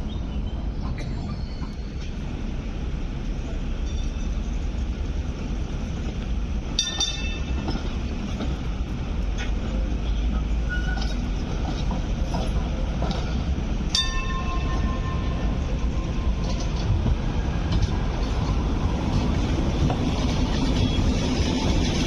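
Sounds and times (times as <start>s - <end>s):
train wheels rumbling on rail: 0.0s - 22.0s
wheel squeal: 10.6s - 11.2s.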